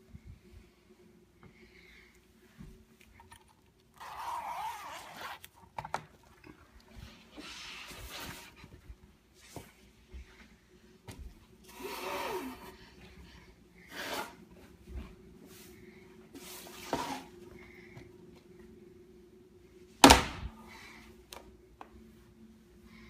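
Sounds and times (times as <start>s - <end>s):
gear handling rustles and scrapes: 4.0s - 5.8s.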